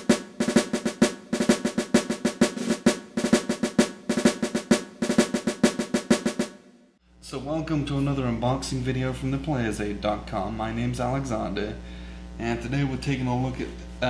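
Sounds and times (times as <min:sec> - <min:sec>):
bass drum: 0:00.0 - 0:06.6
fast snare drum cadence: 0:00.0 - 0:06.6.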